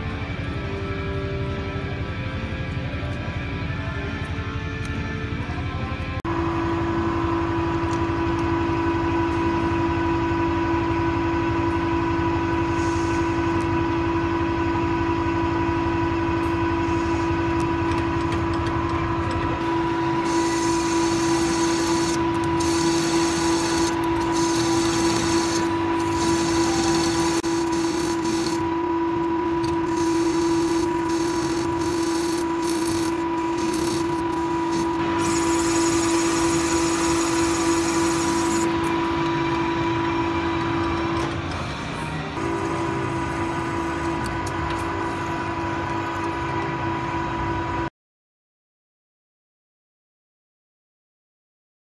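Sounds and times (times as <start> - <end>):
lathe motor whine: 0.0 - 47.9
tool cutting metal hissing: 12.6 - 13.5, 20.2 - 28.6, 29.6 - 39.2.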